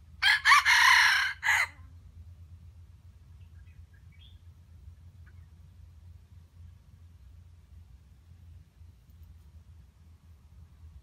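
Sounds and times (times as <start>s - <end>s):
rooster crowing: 0.2s - 1.8s.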